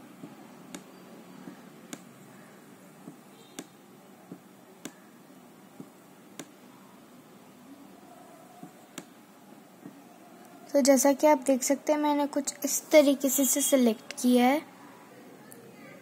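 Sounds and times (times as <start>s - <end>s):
computer mouse clicks: 1.5s - 2.1s.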